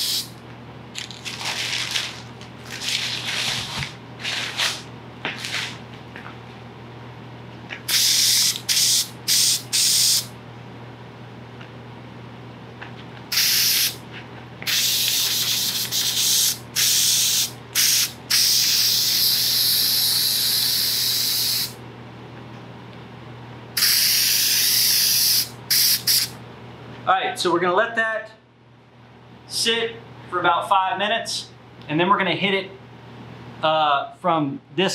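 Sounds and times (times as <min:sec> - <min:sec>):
aerosol can spray hissing: 0:00.0 - 0:00.3, 0:07.9 - 0:10.3, 0:13.3 - 0:14.0, 0:14.7 - 0:21.8, 0:23.8 - 0:26.3.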